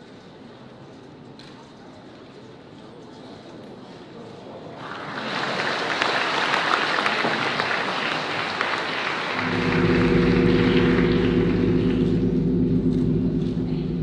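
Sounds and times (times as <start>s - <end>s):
audience applauding: 4.8s - 12.2s
music with held low notes: 9.4s - 14.0s.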